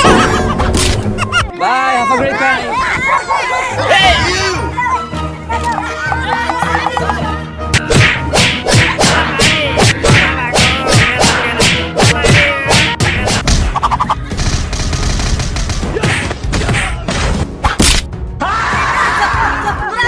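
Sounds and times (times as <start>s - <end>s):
background music: 0.0s - 20.0s
wordless yelling: 1.6s - 7.4s
slapstick punch and whack effects: 7.7s - 14.9s, 15.5s - 18.1s.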